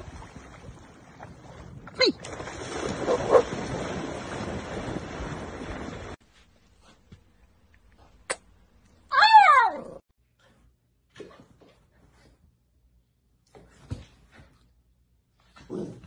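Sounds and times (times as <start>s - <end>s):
dogs splashing through water: 0.0s - 6.2s.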